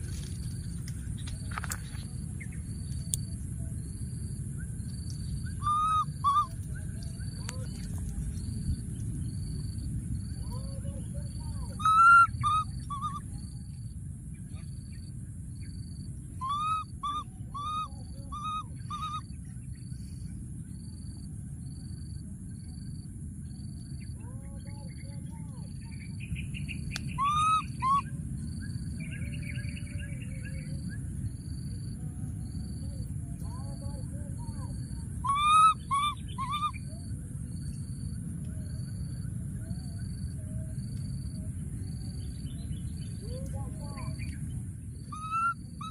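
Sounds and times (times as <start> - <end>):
baby monkey coo calls: 5.5 - 6.7, 11.4 - 13.3, 16.4 - 19.3, 27.1 - 28.1, 34.5 - 37.0, 45.1 - 45.9.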